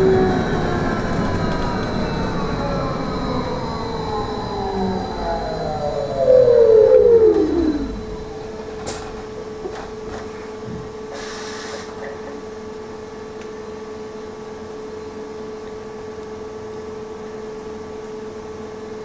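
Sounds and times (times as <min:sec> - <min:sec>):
electrical hum: 0:00.0 - 0:18.0
trolleybus motor whine: 0:00.0 - 0:19.0
short hiss: 0:11.1 - 0:12.0.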